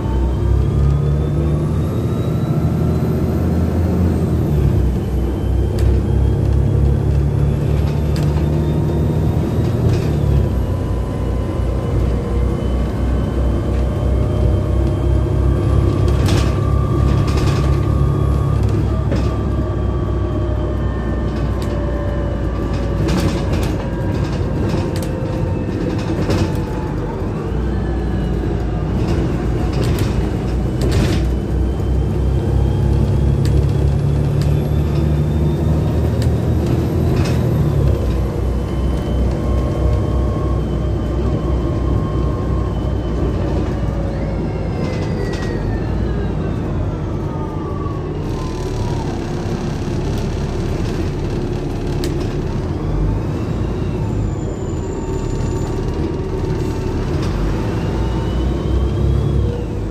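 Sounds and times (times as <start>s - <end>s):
bus diesel engine rumbling: 0.0s - 59.9s
drivetrain whine: 0.0s - 59.9s
bus body rattles and knocks: 5.6s - 42.2s, 48.4s - 53.0s.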